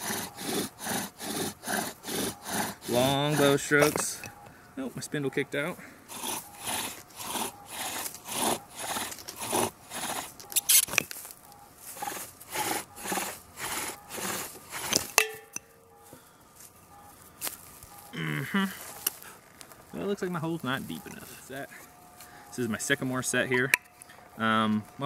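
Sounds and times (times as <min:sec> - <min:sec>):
bow drill spindle grinding: 0:00.0 - 0:04.3, 0:06.1 - 0:15.7.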